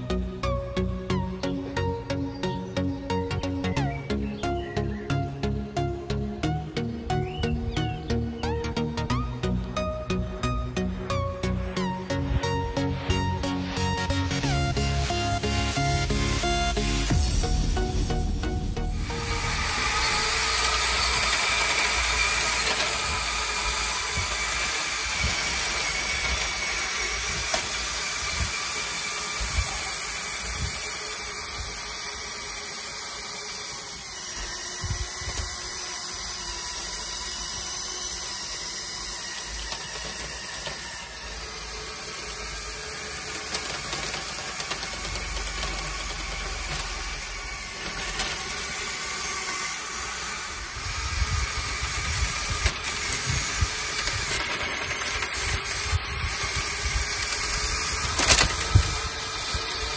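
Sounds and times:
electric motors whirring: 0:00.0 - 0:59.9
plastic tracks clicking: 0:19.1 - 0:59.9.

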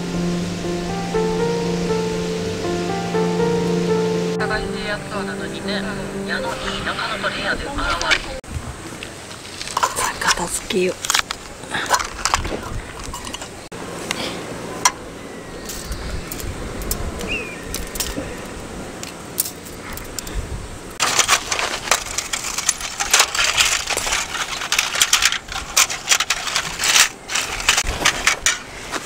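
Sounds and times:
thin metal panels clinking: 0:21.0 - 0:28.7.

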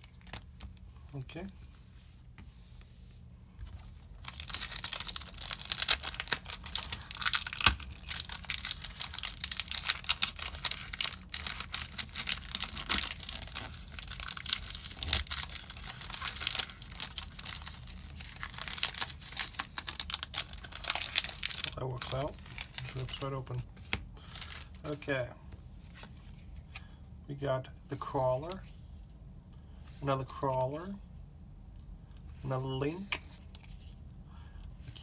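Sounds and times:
foil wrapper crinkling and tearing: 0:04.2 - 0:23.5, 0:24.2 - 0:24.9.

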